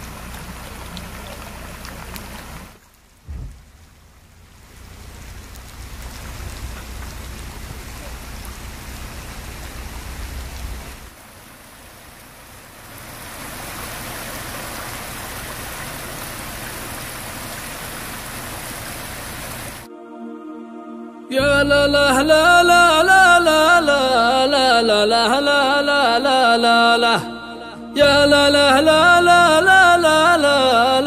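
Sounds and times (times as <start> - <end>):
floodwater rushing over rocks: 0.0 - 19.9
steady rain: 0.0 - 19.9.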